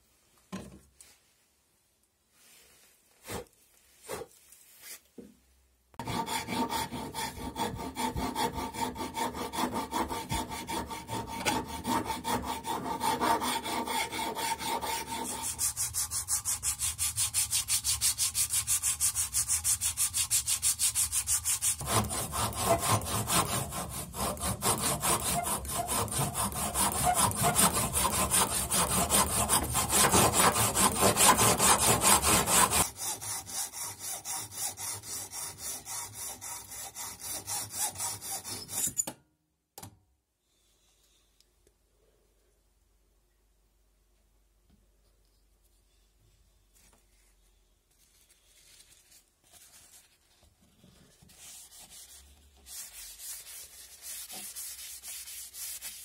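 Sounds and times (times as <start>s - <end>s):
hacksaw cutting metal rod: 6.0s - 15.8s, 21.8s - 39.2s
handsaw cutting wood: 6.0s - 38.8s
rasp shaping wood: 6.0s - 38.8s, 51.4s - 56.0s.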